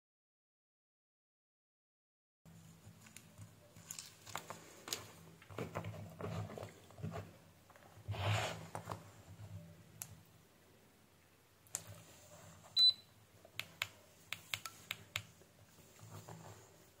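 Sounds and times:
small clicks and scratching: 0:02.8 - 0:06.8.

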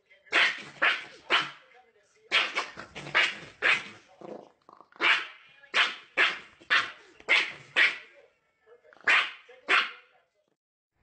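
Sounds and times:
dog barking: 0:00.3 - 0:01.6, 0:02.3 - 0:04.0, 0:05.0 - 0:08.1, 0:09.0 - 0:10.1.

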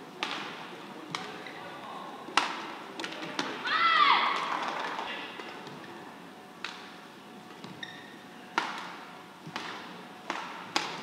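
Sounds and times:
shoe squeaking on court: 0:01.3 - 0:01.7, 0:07.6 - 0:08.2
racket hitting shuttlecock: 0:02.3 - 0:03.6, 0:08.5 - 0:11.0.

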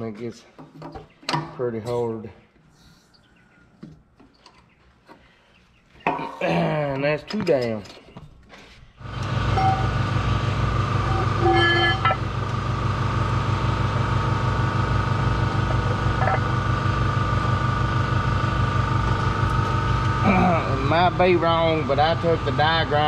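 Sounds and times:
engine idling: 0:09.0 - 0:23.0
short higher tone: 0:11.0 - 0:12.3.

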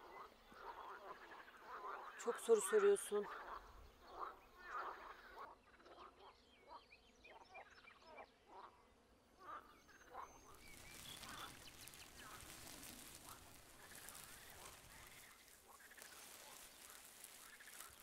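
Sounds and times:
faint outdoor hiss: 0:06.4 - 0:18.0
waterfowl calling: 0:09.5 - 0:18.0.

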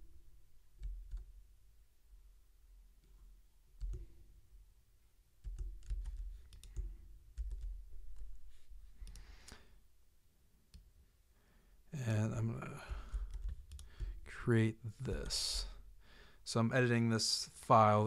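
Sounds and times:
keyboard and mouse clicks: 0:05.4 - 0:08.3.

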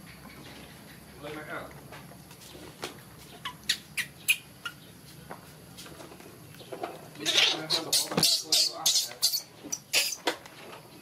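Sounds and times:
baby monkey squeaking: 0:03.3 - 0:05.0, 0:07.2 - 0:10.3.

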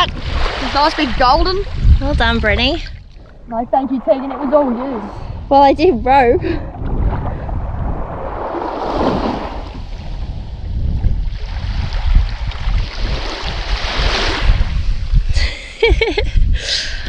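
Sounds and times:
seawater sloshing: 0:00.0 - 0:05.5
small waves washing at shore: 0:00.0 - 0:05.5, 0:06.7 - 0:10.7, 0:11.3 - 0:15.2
wind rumbling on microphone: 0:00.0 - 0:17.0.

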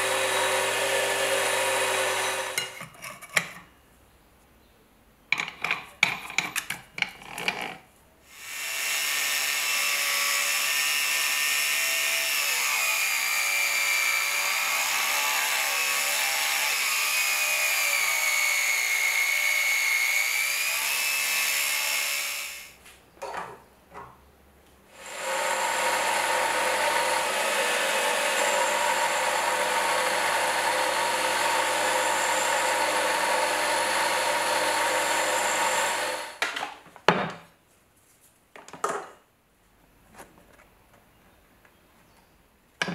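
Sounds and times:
angle grinder cutting metal: 0:00.0 - 0:02.8, 0:08.3 - 0:22.7, 0:25.0 - 0:36.4
bench grinder grinding metal: 0:00.0 - 0:02.9, 0:08.4 - 0:22.7, 0:25.0 - 0:36.4.

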